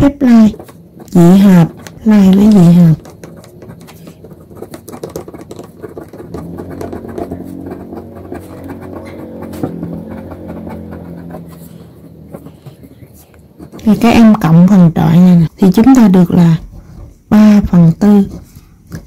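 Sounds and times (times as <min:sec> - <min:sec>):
ballpoint pen scratching on paper: 0:00.0 - 0:17.1
low motor hum: 0:00.2 - 0:15.4.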